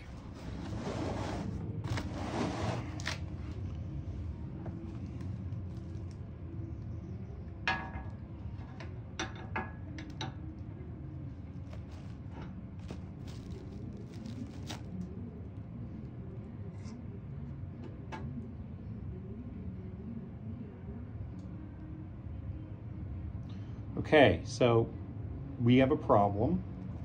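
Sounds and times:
low background hum: 0.0s - 27.0s
plastic wrap crinkling: 11.6s - 15.1s.

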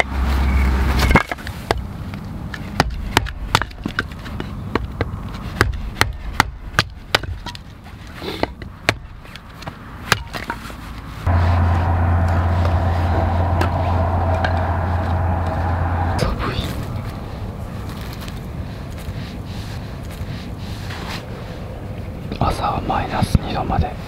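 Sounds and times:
steady low hum: 11.2s - 22.4s.

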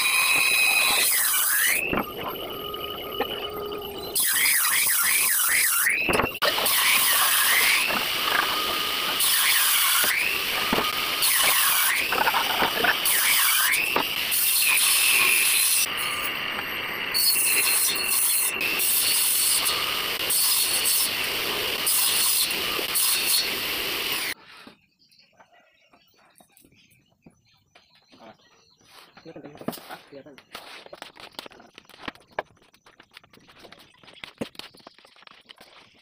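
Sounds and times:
table saw cutting laminate: 0.0s - 24.4s.

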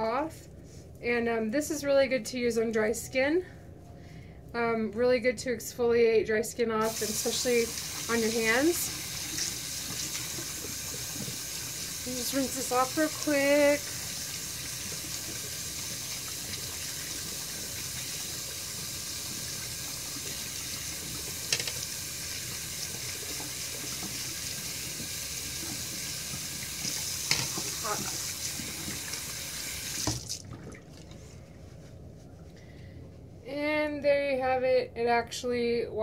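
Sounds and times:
tap water running: 6.8s - 31.2s.

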